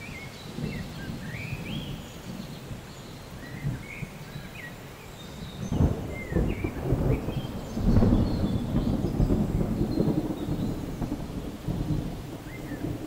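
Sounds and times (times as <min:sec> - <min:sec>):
rain: 0:00.0 - 0:13.0
small birds chirping: 0:00.0 - 0:13.0
thunder rumble: 0:05.4 - 0:13.0.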